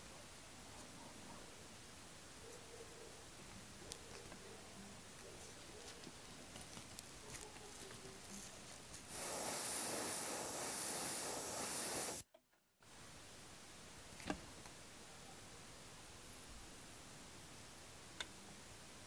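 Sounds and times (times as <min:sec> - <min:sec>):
handling rustles: 0:03.9 - 0:09.1
spray paint hiss: 0:08.9 - 0:12.2.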